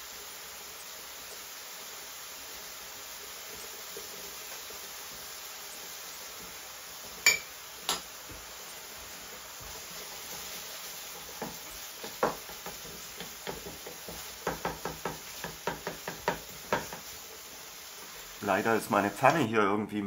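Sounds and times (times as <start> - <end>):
faint steady hiss: 0.0 - 20.0
wooden spatula tapping frying pan: 6.3 - 8.5, 9.6 - 17.3.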